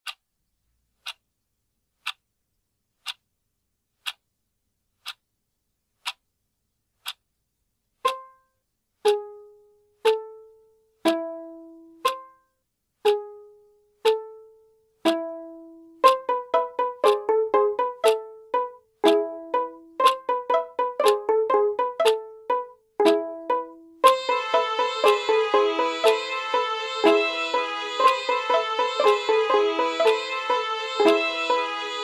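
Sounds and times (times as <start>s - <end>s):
clock ticking: 0.0s - 0.4s, 1.0s - 1.3s, 2.0s - 2.3s, 3.0s - 3.3s, 4.0s - 4.4s, 5.0s - 5.3s, 6.0s - 6.3s, 7.0s - 7.3s, 8.0s - 32.0s
plucked string notes: 8.0s - 8.4s, 9.0s - 12.4s, 15.1s - 32.0s.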